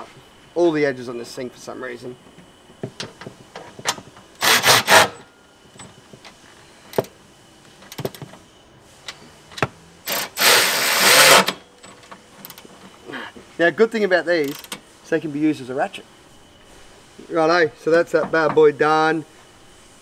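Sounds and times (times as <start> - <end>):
sharp ratchet clicks: 4.3 - 5.2, 10.1 - 11.6, 12.4 - 12.7, 14.4 - 14.8
cordless ratchet spinning: 4.4 - 5.2, 10.1 - 11.6, 14.4 - 14.8.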